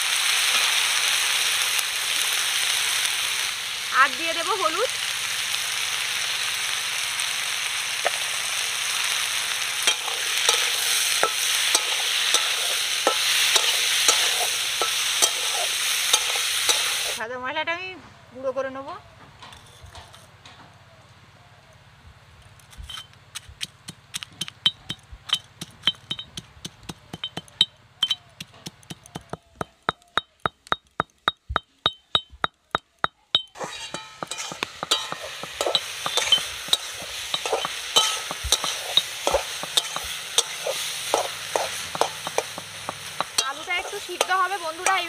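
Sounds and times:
vegetables sizzling in a pan: 0:00.0 - 0:17.2, 0:33.5 - 0:45.0
pestle pounding in iron mortar: 0:23.6 - 0:45.0.

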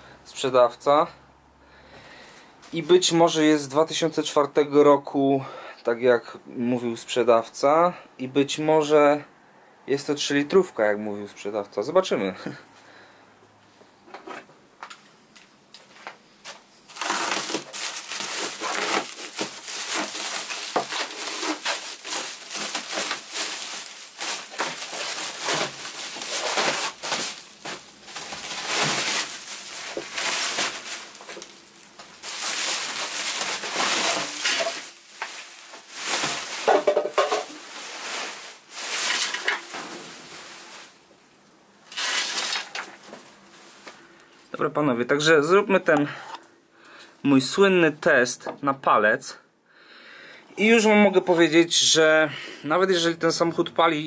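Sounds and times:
plastic wrap tearing and crackling: 0:16.9 - 0:43.9.

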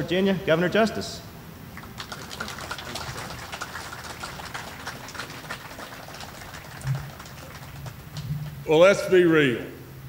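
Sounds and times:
crowd applauding: 0:01.7 - 0:08.7.

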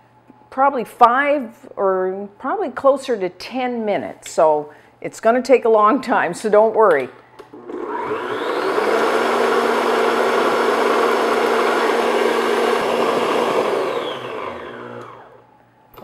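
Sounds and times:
electric stand mixer whirring: 0:07.5 - 0:15.4.

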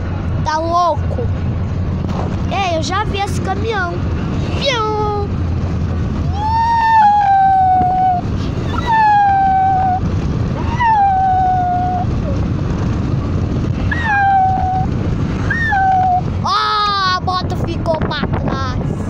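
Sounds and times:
road and wind noise in car: 0:00.0 - 0:19.0
high-pitched voice singing ooo: 0:10.6 - 0:12.1, 0:13.9 - 0:14.9.

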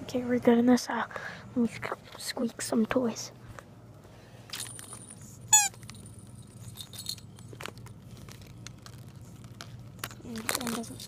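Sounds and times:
squeaky dog toy squeak: 0:05.5 - 0:05.8.

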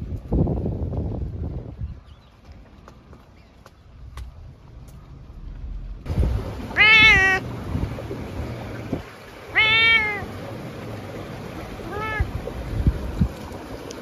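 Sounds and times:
cat meowing: 0:06.8 - 0:07.4, 0:09.5 - 0:10.3, 0:11.8 - 0:12.4.

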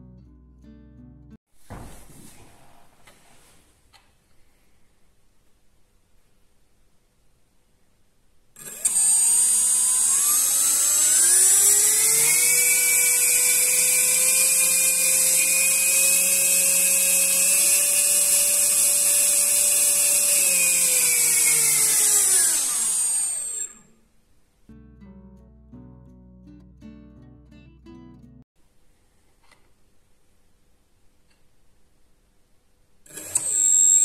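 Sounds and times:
drone motor whine: 0:08.6 - 0:23.9.

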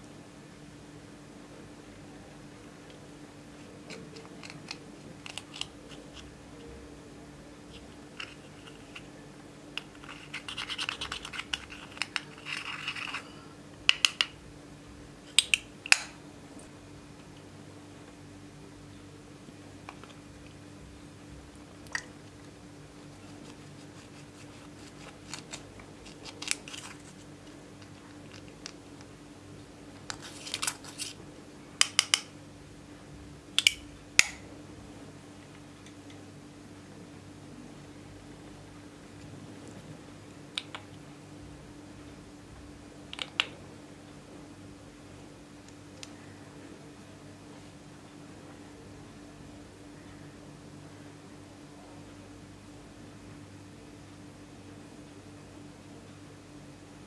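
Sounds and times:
metal clicking on eyeshadow pan: 0:31.8 - 0:32.3.

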